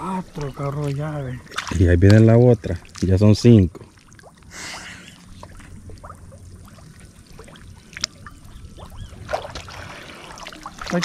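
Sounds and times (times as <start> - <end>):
water pouring and splashing: 0.0 - 11.0.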